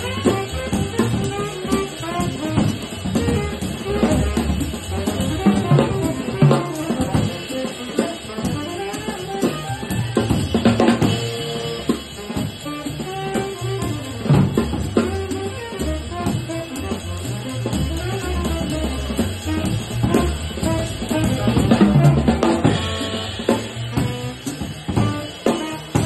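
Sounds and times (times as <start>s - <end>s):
upright bass notes: 0.0s - 7.3s, 13.0s - 25.2s
drum kit played with sticks: 0.0s - 26.0s
horn lines: 0.0s - 26.0s.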